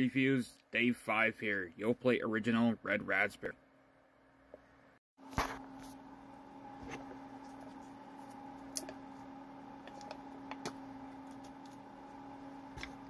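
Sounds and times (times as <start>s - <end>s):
steady low hum: 5.2s - 13.0s.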